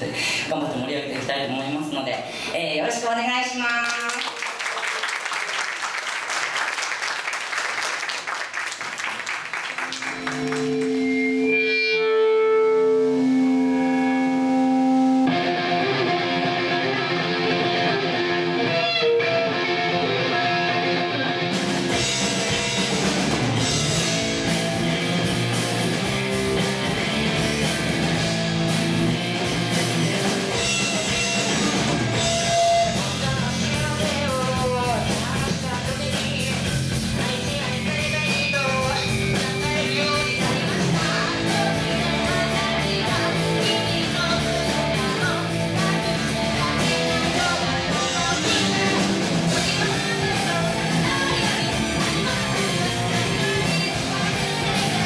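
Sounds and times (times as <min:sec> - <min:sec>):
electric guitar sustained notes: 0:09.7 - 0:33.5
rock band playing with drums: 0:09.8 - 0:55.0.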